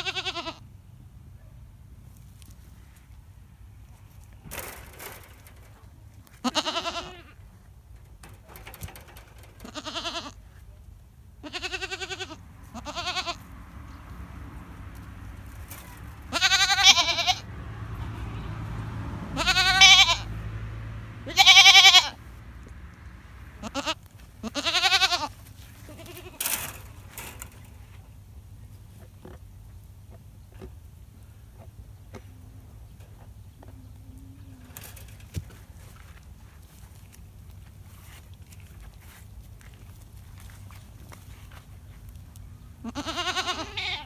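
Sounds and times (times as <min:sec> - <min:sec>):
goats bleating: 0:00.0 - 0:00.6, 0:06.4 - 0:07.4, 0:09.5 - 0:10.4, 0:11.4 - 0:13.4, 0:16.3 - 0:17.5, 0:19.4 - 0:20.3, 0:21.3 - 0:22.2, 0:23.6 - 0:26.5, 0:42.8 - 0:44.0.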